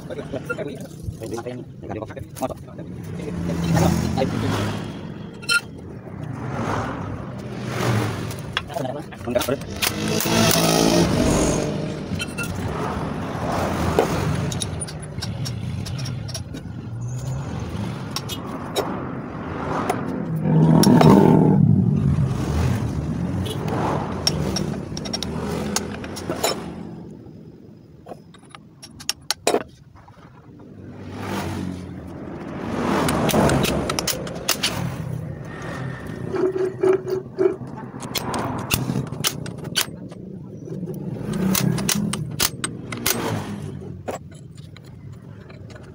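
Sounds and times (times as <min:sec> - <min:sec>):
metallic clinks and knocks: 0:14.3 - 0:17.4, 0:24.2 - 0:27.0, 0:33.0 - 0:45.9.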